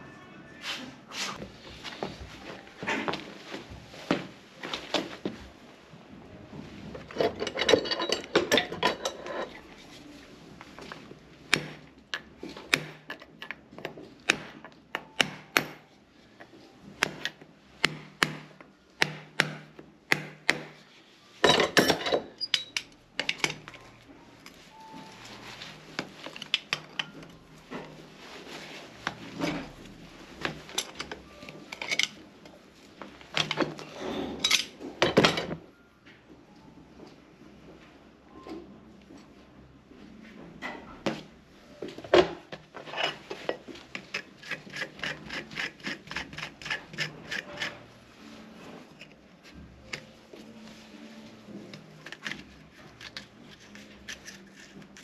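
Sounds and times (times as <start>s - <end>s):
metal tools tapping on horseshoe: 7.1s - 9.6s, 11.5s - 15.8s, 21.5s - 23.8s, 30.4s - 32.2s
metal scraping: 42.8s - 49.2s.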